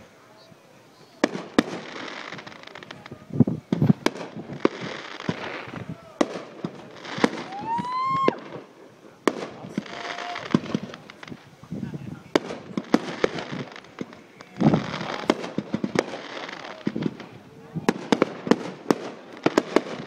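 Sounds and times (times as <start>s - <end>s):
firework crackling: 0.0s - 20.0s
firework bangs: 1.1s - 20.0s
rising firework whistle: 7.0s - 8.6s, 9.7s - 10.8s.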